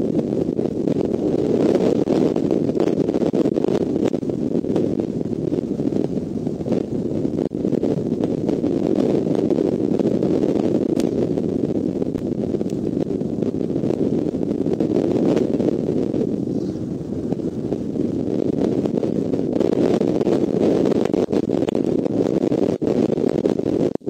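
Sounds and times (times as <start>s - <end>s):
wind rushing over microphone: 0.0s - 24.0s
faint ticks: 12.1s - 12.8s.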